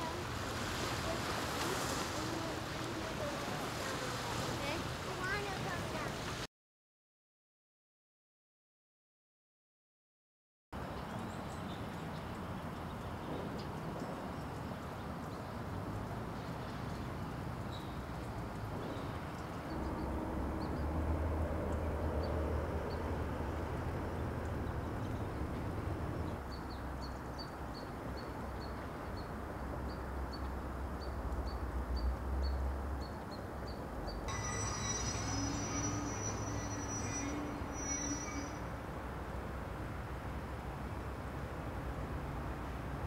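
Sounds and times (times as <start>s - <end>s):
bird chirping: 29.9s - 38.6s.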